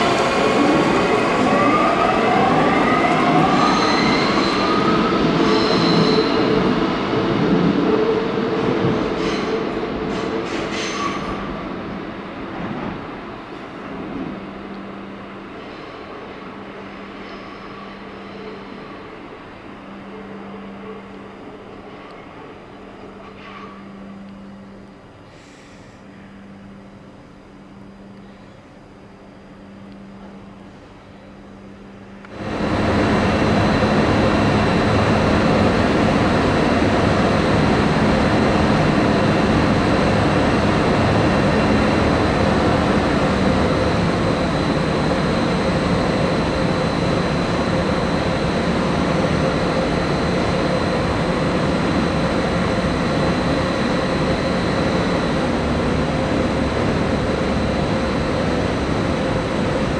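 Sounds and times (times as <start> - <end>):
locomotive cooling fans rushing hum: 26.0 - 59.9.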